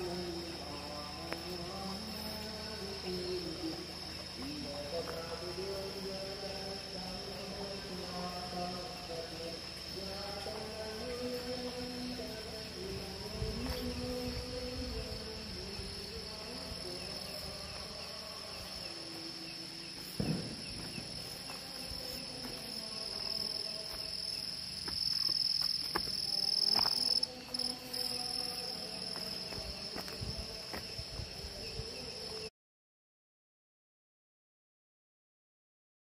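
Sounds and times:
night insects chirring: 0:00.0 - 0:32.5.

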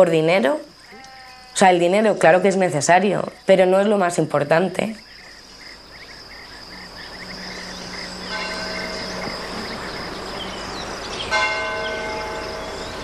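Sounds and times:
crickets chirring: 0:00.0 - 0:13.0
church bell ringing: 0:08.2 - 0:09.6, 0:11.3 - 0:13.0.

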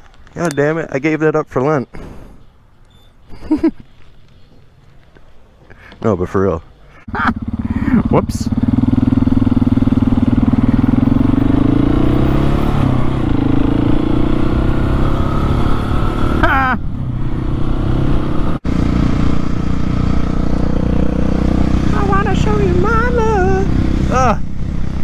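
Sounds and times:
road and wind noise: 0:00.0 - 0:25.0
motorcycle engine revving: 0:07.0 - 0:25.0.

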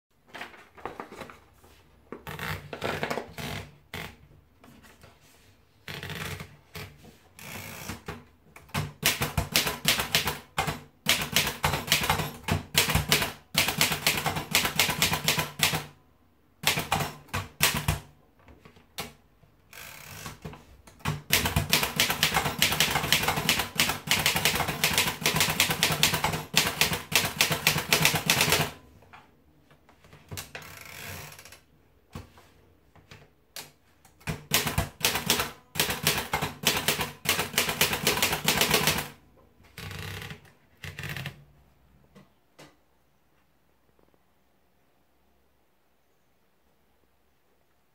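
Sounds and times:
manual typewriter clacking: 0:05.9 - 0:16.0, 0:16.6 - 0:18.1, 0:19.8 - 0:28.8, 0:34.1 - 0:39.2.

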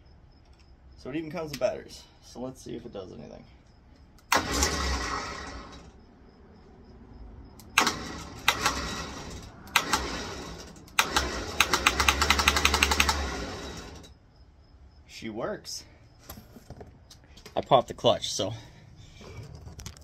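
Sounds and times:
electric winch motor running: 0:04.3 - 0:05.9, 0:07.8 - 0:14.1
rapid clicking: 0:09.7 - 0:14.1.

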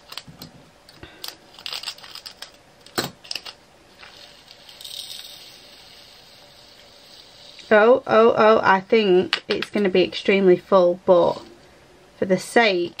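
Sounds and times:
tiny plastic beads rattling: 0:01.2 - 0:02.6, 0:03.2 - 0:07.8.

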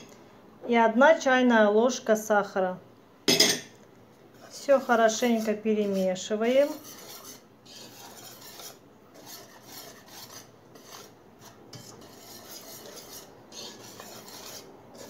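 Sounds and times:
whisk scraping flour in bowl: 0:04.3 - 0:15.0.

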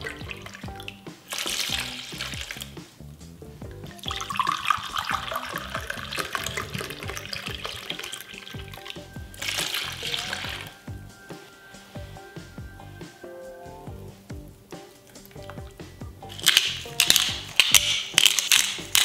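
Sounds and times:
liquid splashing into dish: 0:00.0 - 0:02.6, 0:04.0 - 0:10.7
background music with steady beat: 0:00.0 - 0:19.0
wine pouring into a cup: 0:04.0 - 0:10.8.

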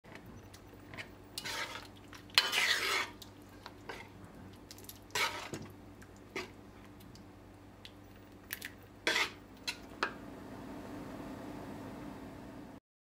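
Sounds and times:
spoon stirring thick food in pot: 0:00.1 - 0:07.3, 0:07.9 - 0:10.1.

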